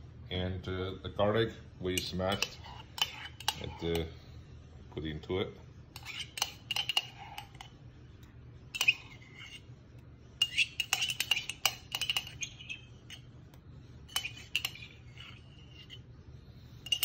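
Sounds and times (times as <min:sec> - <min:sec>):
metal spoon clinking on ceramic mug: 0:01.9 - 0:04.0, 0:06.0 - 0:07.7, 0:08.7 - 0:09.6, 0:10.4 - 0:13.2, 0:14.1 - 0:16.0, 0:16.8 - 0:17.0.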